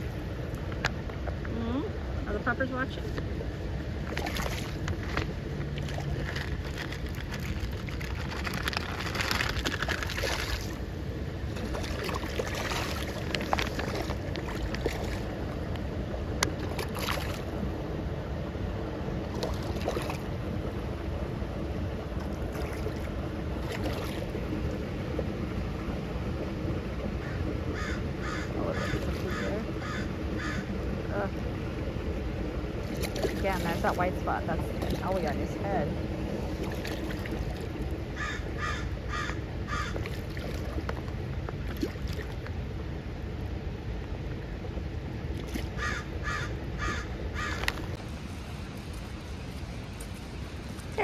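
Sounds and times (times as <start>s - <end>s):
water splashing and churning: 0.0s - 51.0s
crows cawing: 27.2s - 30.7s, 38.2s - 40.0s, 45.8s - 47.8s.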